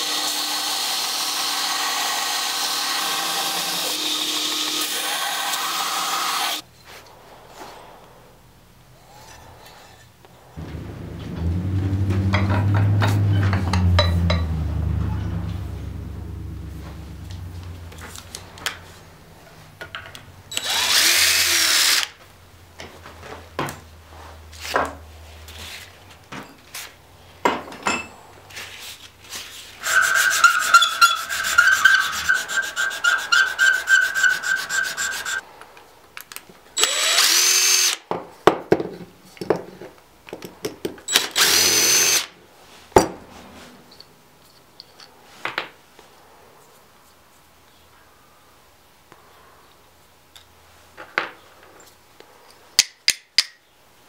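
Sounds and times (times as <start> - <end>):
small power drill whining: 0.0 - 6.6, 20.5 - 22.2, 36.8 - 38.0, 41.1 - 42.3.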